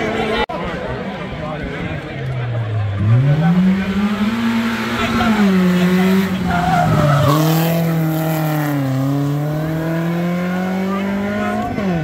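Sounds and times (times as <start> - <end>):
rally car engine at high revs: 2.8 - 12.0.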